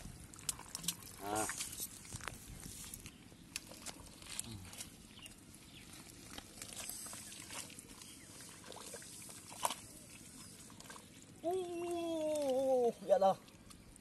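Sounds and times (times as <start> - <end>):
hands digging in wet mud: 0.3 - 11.0.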